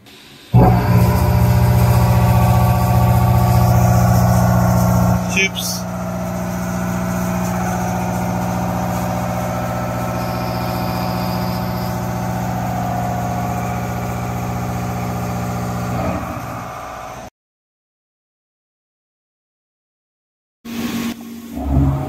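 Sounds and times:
high milling whine: 0.0 - 17.3
machine mechanical drone: 0.0 - 17.3, 20.7 - 22.0.

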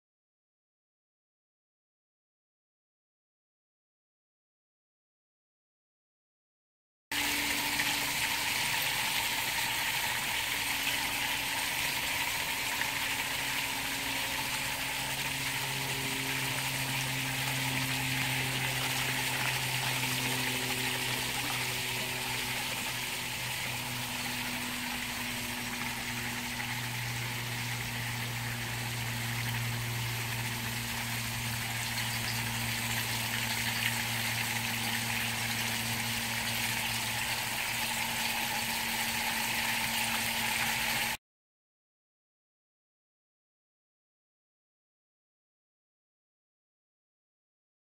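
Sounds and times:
low hum: 7.2 - 41.1.

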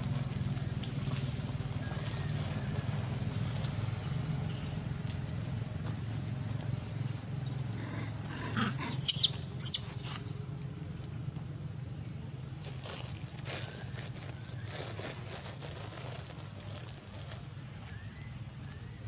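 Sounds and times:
monkey screaming: 8.3 - 9.8.

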